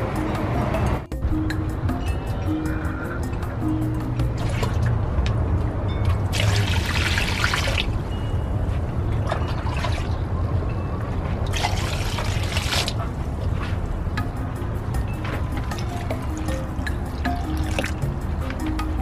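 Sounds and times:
water pouring and splashing into bowl: 6.3 - 8.0, 11.5 - 13.0.

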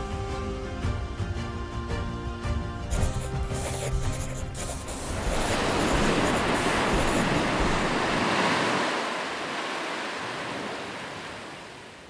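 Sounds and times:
rushing surf-like noise: 3.8 - 12.0.

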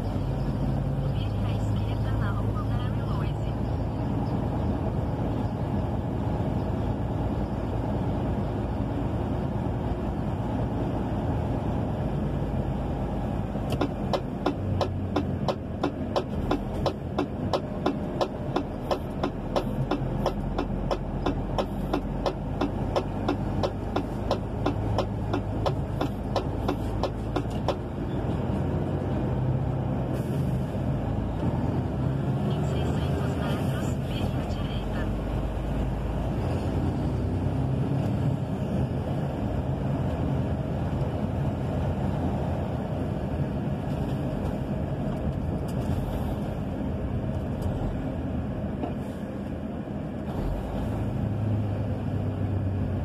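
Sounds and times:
truck engine running: 0.0 - 53.0
steady clicking: 13.7 - 27.8.

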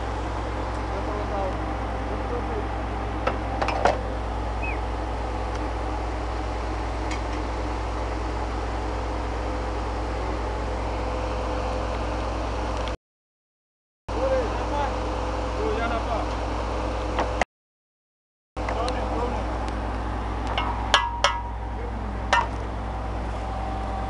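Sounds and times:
drilling rig engine droning: 0.0 - 13.0, 14.1 - 17.4, 18.6 - 24.0.

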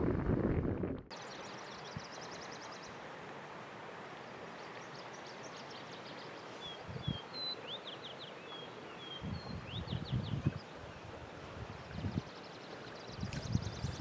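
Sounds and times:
steady outdoor hiss: 0.0 - 14.0
bird chirping: 13.2 - 14.0
bird whistled notes: 13.3 - 14.0.

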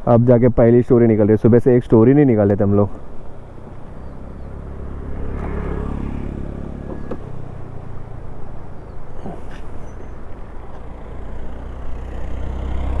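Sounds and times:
motorcycle engine idling: 3.3 - 10.8.

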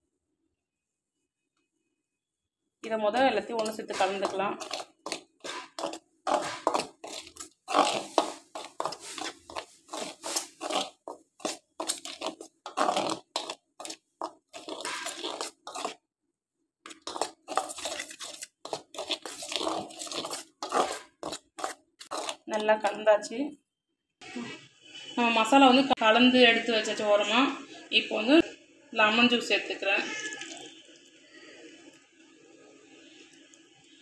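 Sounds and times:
spoon stirring flour in metal bowl: 3.1 - 16.0, 16.9 - 23.0.

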